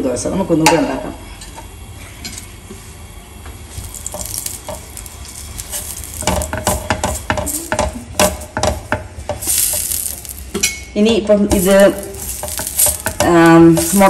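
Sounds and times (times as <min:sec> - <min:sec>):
oil sizzling and scraping on griddle: 0:03.6 - 0:10.9, 0:11.5 - 0:14.0.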